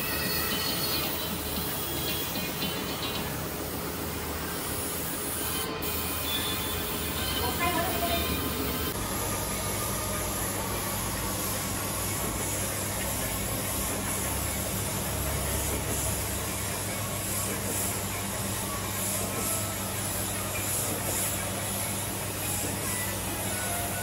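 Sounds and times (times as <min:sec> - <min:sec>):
paint spray gun hissing: 0:00.0 - 0:08.4, 0:17.2 - 0:18.5, 0:20.6 - 0:21.3.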